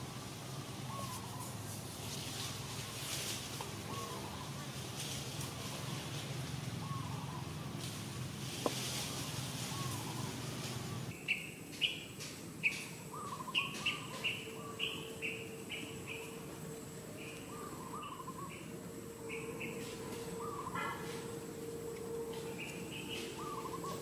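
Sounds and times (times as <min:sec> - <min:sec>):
low warbled bird calls: 0:00.8 - 0:01.6, 0:03.7 - 0:04.6, 0:06.7 - 0:07.8, 0:09.0 - 0:12.0, 0:12.6 - 0:24.0
birds chirping: 0:03.8 - 0:04.7, 0:09.7 - 0:24.0.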